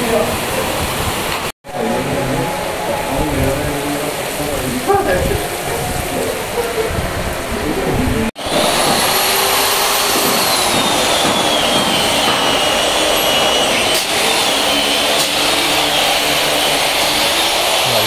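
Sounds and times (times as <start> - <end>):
electric drill whining: 8.4 - 18.0.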